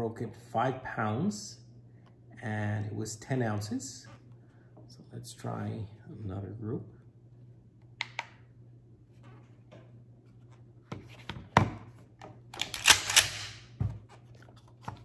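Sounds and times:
metallic shotgun clicks: 0:12.6 - 0:13.6.

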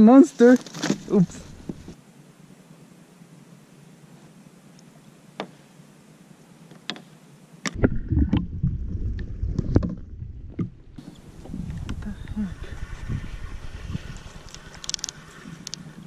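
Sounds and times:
underwater sloshing and rumbling: 0:07.7 - 0:16.0.

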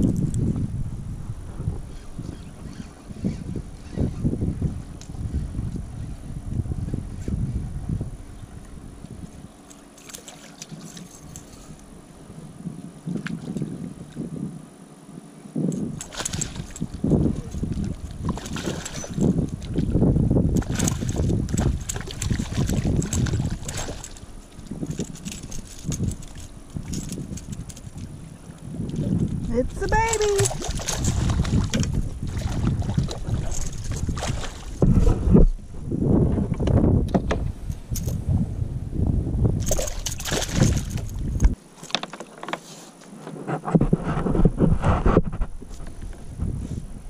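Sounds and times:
wind buffeting microphone: 0:00.0 - 0:09.6, 0:15.5 - 0:41.6, 0:43.5 - 0:47.0
water splashing against kayak: 0:15.9 - 0:35.5, 0:39.6 - 0:46.5
fish splashing in water: 0:16.0 - 0:16.9, 0:17.5 - 0:19.8, 0:20.6 - 0:24.7, 0:30.3 - 0:34.8, 0:39.7 - 0:41.0.

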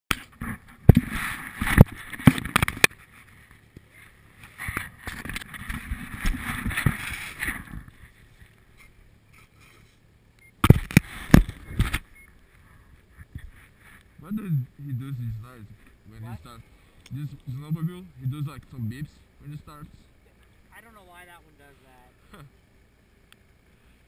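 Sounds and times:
clothing rustling and scraping: 0:00.3 - 0:10.0.

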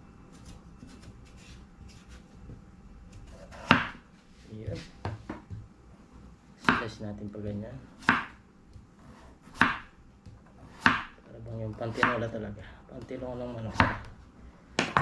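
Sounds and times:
knife cutting on chopping board: 0:00.4 - 0:02.2, 0:03.1 - 0:04.0, 0:08.0 - 0:11.1
knife chop: 0:03.2 - 0:04.0, 0:08.0 - 0:08.4, 0:09.4 - 0:11.2, 0:11.8 - 0:12.3.

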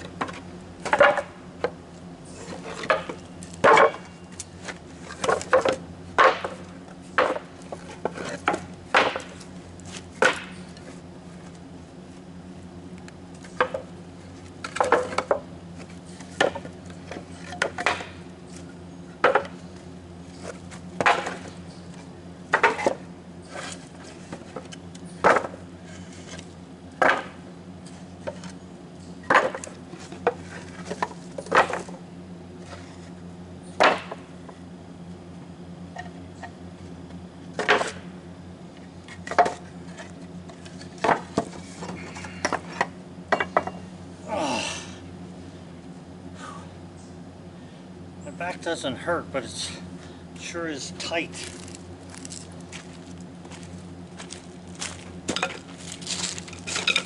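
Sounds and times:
steady low hum: 0:00.0 - 0:57.0
blade chopping wood: 0:02.8 - 0:04.0, 0:05.2 - 0:09.4, 0:10.2 - 0:10.6, 0:21.0 - 0:21.5, 0:22.5 - 0:23.0, 0:27.0 - 0:27.4, 0:33.8 - 0:34.2.

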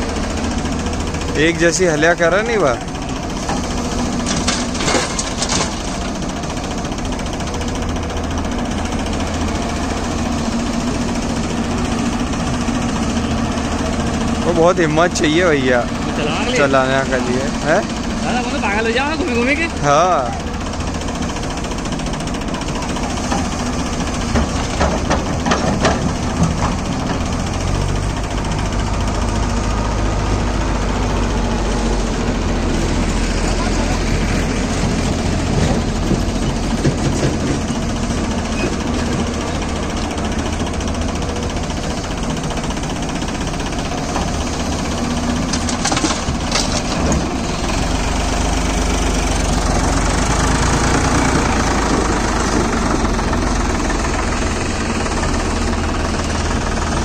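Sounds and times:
diesel engines idling: 0:00.0 - 0:57.0
soil dumped into steel trailer: 0:03.9 - 0:06.1, 0:45.4 - 0:47.3
soil thudding into steel trolley: 0:45.4 - 0:47.4.

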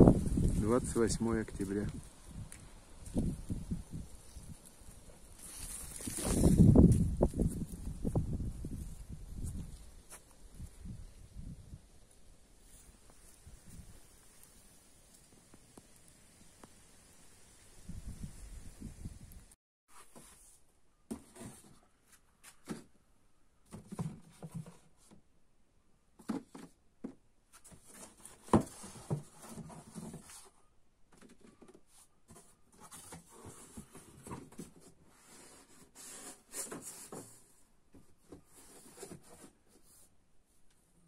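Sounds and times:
rustling: 0:00.1 - 0:08.1.

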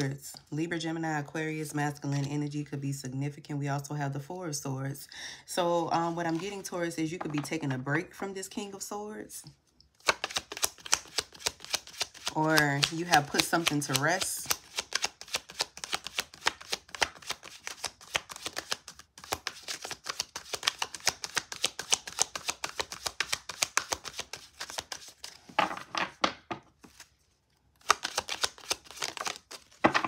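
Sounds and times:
cards being shuffled: 0:10.0 - 0:26.1, 0:26.8 - 0:30.0.

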